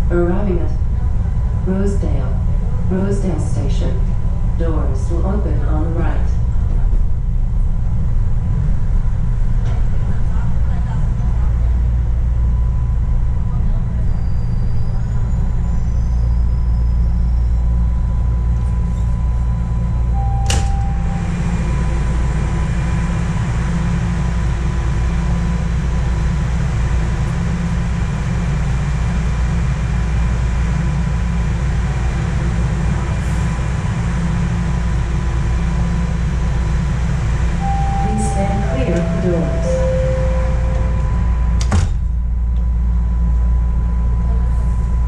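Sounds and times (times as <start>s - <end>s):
subway train rumble: 0.0s - 45.0s
short beep: 20.1s - 21.5s, 37.6s - 41.5s.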